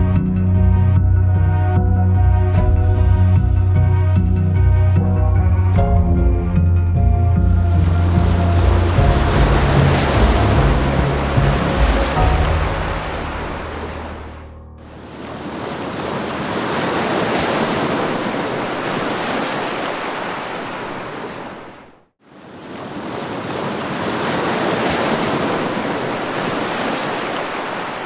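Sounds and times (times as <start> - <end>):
ocean surf rushing: 7.4 - 28.0.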